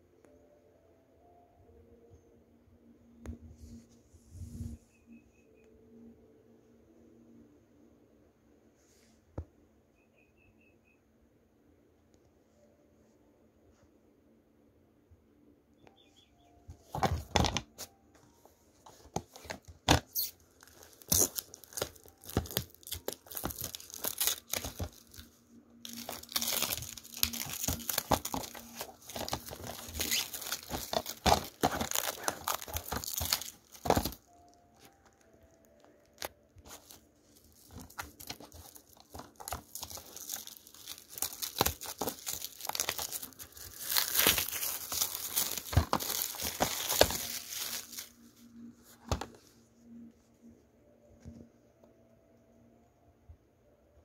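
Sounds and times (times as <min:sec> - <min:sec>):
plastic wrap crinkling and tearing: 0:18.9 - 0:48.7.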